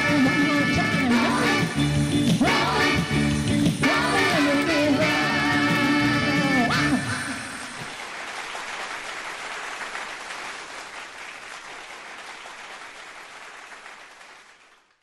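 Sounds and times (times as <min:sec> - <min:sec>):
audience applauding: 0:07.1 - 0:15.0.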